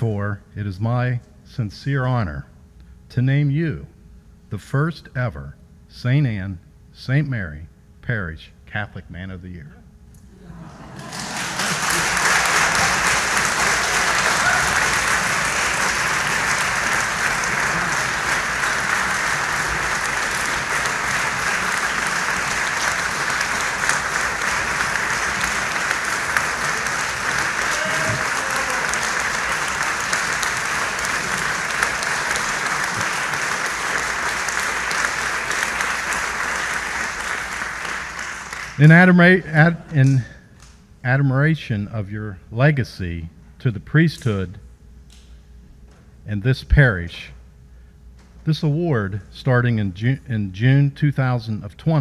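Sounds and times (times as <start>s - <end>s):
crowd applauding: 10.5s - 40.2s.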